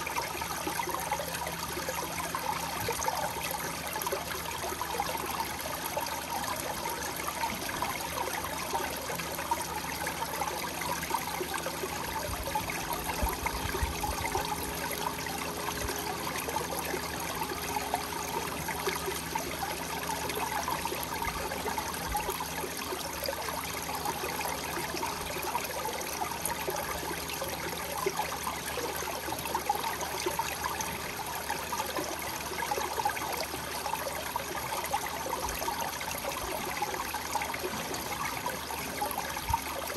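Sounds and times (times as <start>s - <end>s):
water trickling down stone wall: 0.0s - 39.9s.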